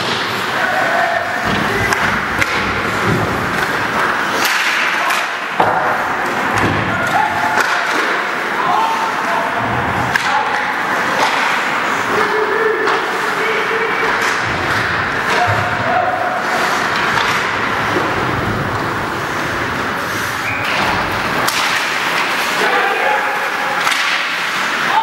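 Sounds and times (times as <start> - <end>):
stick and puck knocks: 1.4 - 6.9, 20.6 - 22.5, 23.8 - 24.6
skates scraping on ice: 14.0 - 25.0.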